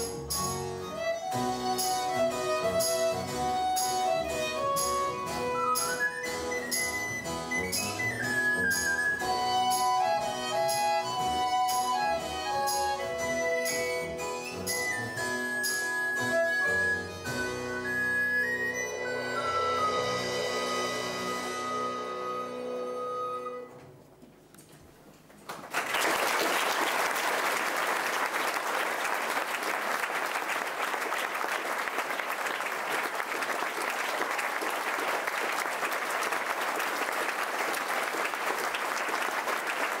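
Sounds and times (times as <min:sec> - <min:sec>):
audience applause: 0:25.4 - 0:40.0.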